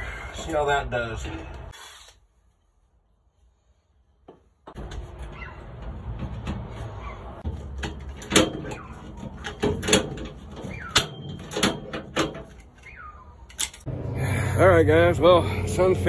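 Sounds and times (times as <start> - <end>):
low steady rumble: 13.8 - 16.0.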